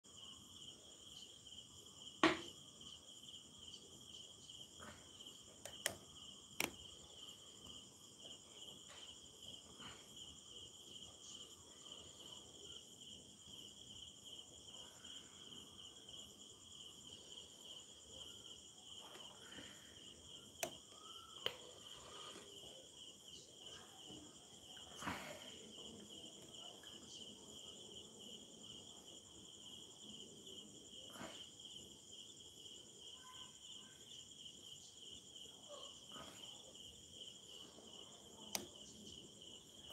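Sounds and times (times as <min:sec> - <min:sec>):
crickets chirping: 0:00.0 - 0:39.9
sharp clicks: 0:05.6 - 0:06.0.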